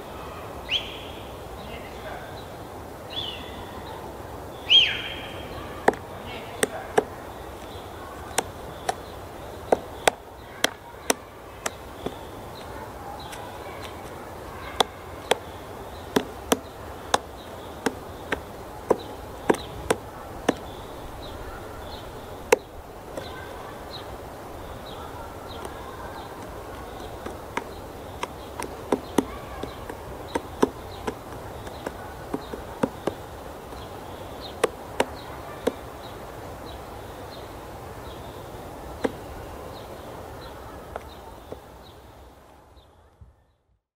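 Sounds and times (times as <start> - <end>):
woodpecker knocking on wood: 5.4 - 36.4, 38.9 - 41.7.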